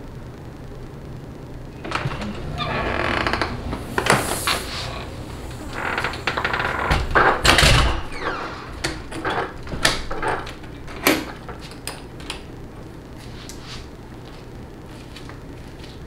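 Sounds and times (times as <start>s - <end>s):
wires clicking and rustling: 8.7s - 16.0s.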